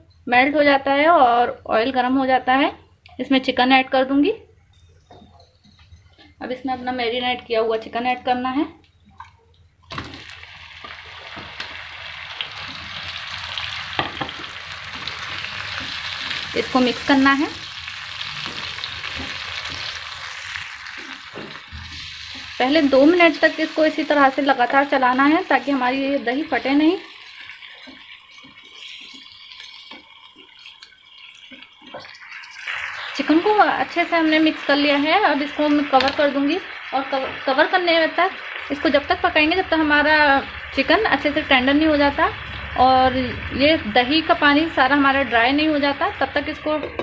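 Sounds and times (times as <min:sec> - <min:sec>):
chicken sizzling in hot oil: 0:09.9 - 0:47.0
spoon scraping and squelching: 0:18.3 - 0:35.2.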